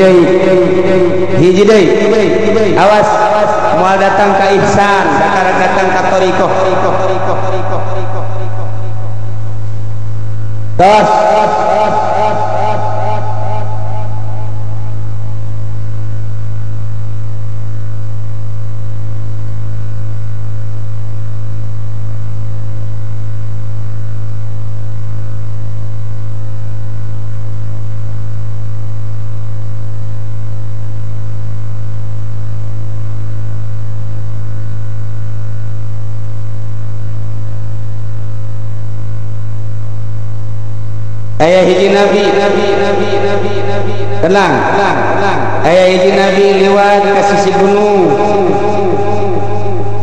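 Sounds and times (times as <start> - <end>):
electrical mains hum: 0.0 - 50.0.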